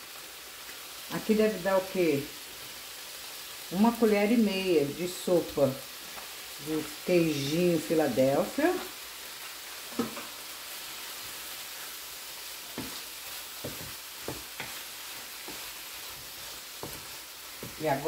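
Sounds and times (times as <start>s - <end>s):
chicken sizzling in frying pan: 0.0s - 18.0s
wooden spoon knocking pan: 9.9s - 10.3s, 12.7s - 13.0s, 13.6s - 14.8s, 15.4s - 18.0s.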